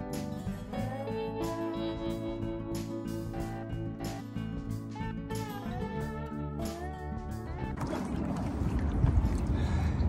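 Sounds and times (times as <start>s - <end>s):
wind buffeting microphone: 7.8s - 10.0s.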